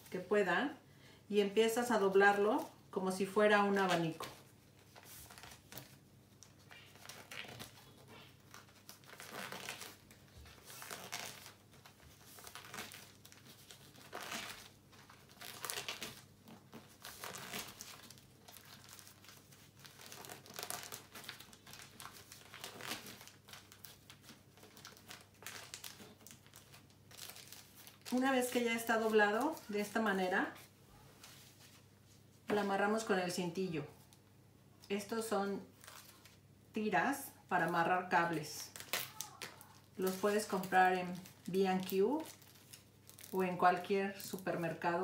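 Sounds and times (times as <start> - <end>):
plastic bag strips crinkling: 3.7 - 30.7, 37.6 - 44.8.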